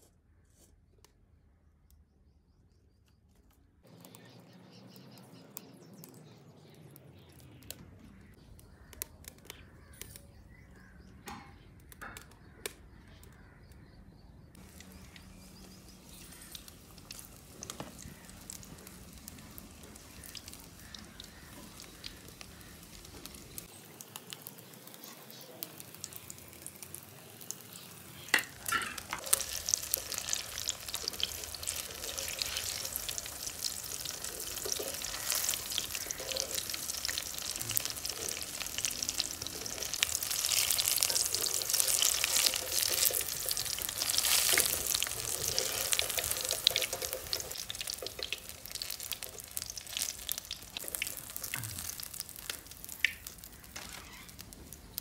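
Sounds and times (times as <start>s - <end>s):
food deep-frying in oil: 14.5s - 55.0s.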